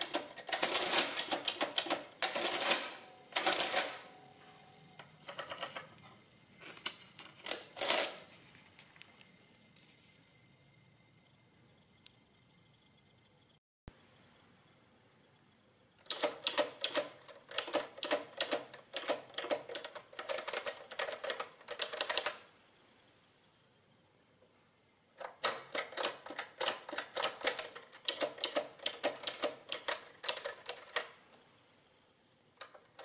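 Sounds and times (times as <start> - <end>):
adding machine keys clacking: 0.0 - 4.2, 5.0 - 5.9, 16.0 - 22.4, 25.2 - 31.2, 32.6 - 33.0.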